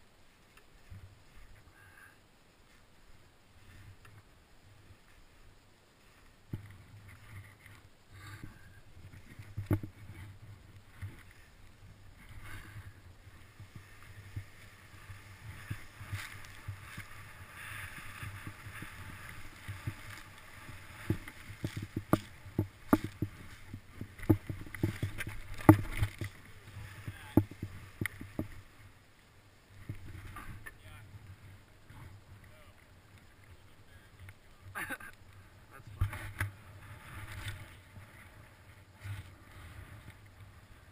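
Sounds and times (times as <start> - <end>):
snow hissing and scraping: 0.0 - 40.9
snowshoes knocking and thumping: 8.3 - 28.7.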